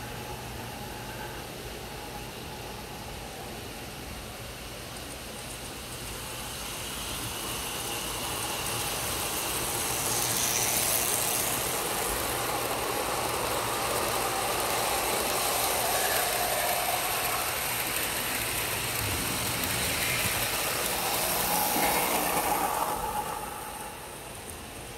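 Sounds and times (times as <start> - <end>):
model train wheels clattering on rails: 5.4 - 24.9.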